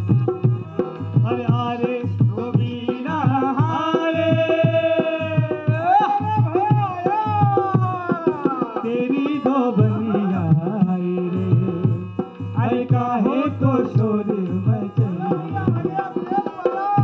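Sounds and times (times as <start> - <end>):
hand drums beating: 0.0 - 17.0.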